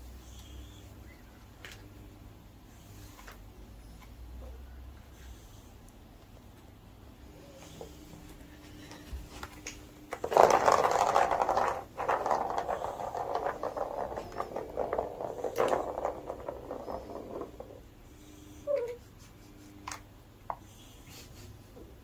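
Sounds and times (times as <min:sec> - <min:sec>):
ball rolling in plastic track: 0:09.4 - 0:17.9.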